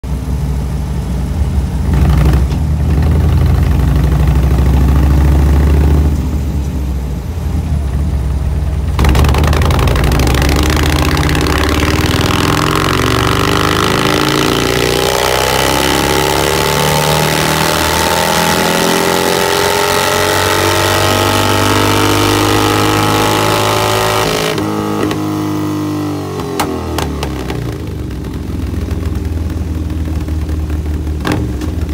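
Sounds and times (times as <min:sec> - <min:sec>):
motorcycle engine revving: 0:01.8 - 0:06.4, 0:07.8 - 0:31.9
dyno roller rushing noise: 0:08.9 - 0:18.6.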